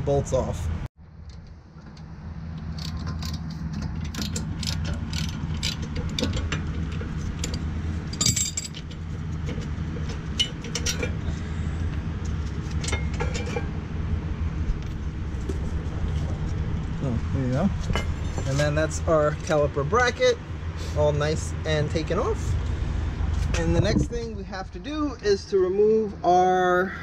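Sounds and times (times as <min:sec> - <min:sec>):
steady low hum: 0:00.0 - 0:27.0
metal tools clinking: 0:02.8 - 0:11.3, 0:12.6 - 0:13.7, 0:17.8 - 0:19.6
socket wrench ratcheting: 0:04.1 - 0:06.4.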